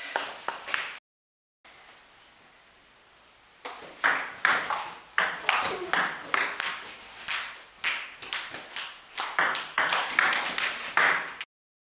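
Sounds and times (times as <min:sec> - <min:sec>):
ping pong ball hitting bats: 0:03.6 - 0:11.5
ball bouncing on table: 0:03.7 - 0:11.4.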